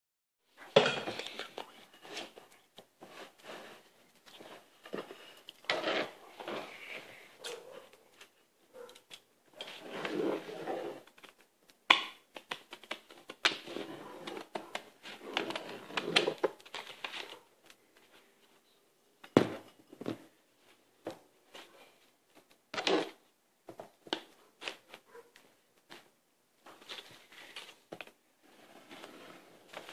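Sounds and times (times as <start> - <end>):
paper rustling: 12.4 - 18.6.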